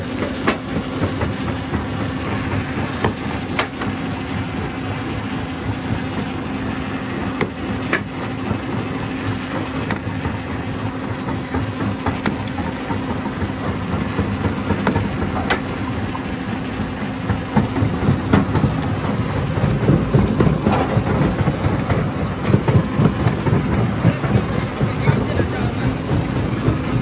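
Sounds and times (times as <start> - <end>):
jaw crusher mechanical hum: 0.0 - 27.0.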